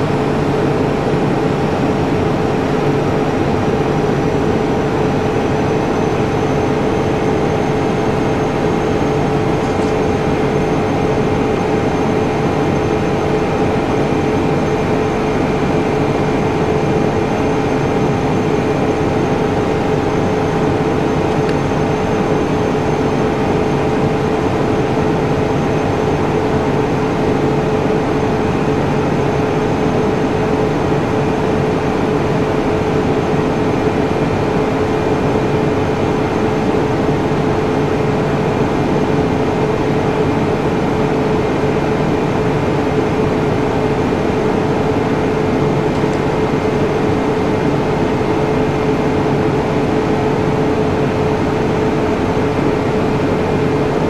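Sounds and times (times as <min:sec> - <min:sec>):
machinery hum and hiss: 0:00.0 - 0:54.0.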